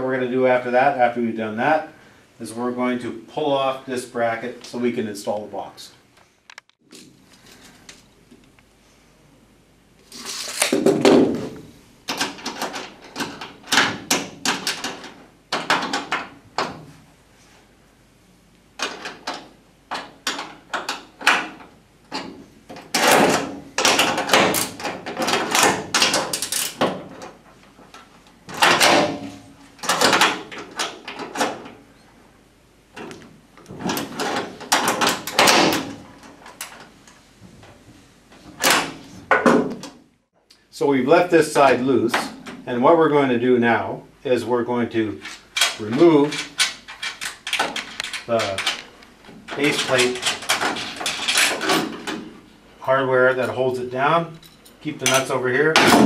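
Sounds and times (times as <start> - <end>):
metal bracket and nuts clunking: 45.2 - 52.4, 54.4 - 56.0.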